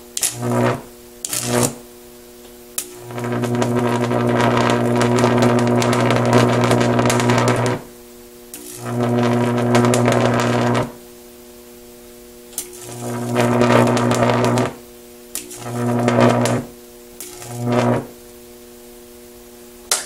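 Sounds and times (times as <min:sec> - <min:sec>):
high-voltage arcs crackling: 0:00.0 - 0:07.9, 0:08.5 - 0:11.0, 0:12.4 - 0:18.6
mains hum: 0:00.0 - 0:20.0.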